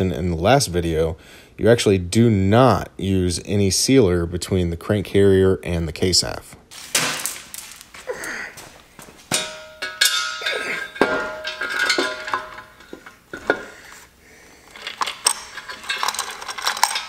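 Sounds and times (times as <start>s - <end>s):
metal clinks and chain rattles: 9.8s - 13.8s, 14.6s - 17.0s.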